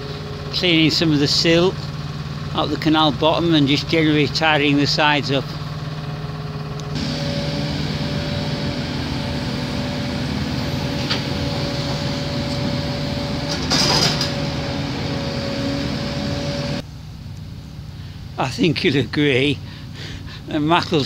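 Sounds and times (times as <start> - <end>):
diesel engines running: 0.0 - 21.0
loud noisy burst: 6.9 - 16.8.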